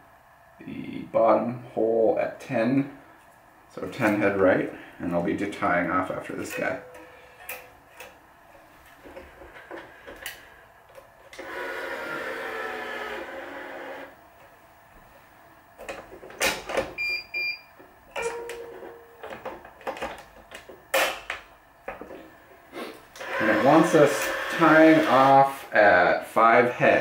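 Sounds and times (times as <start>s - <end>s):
motor whirring: 11.4s - 14.2s, 23.2s - 25.3s.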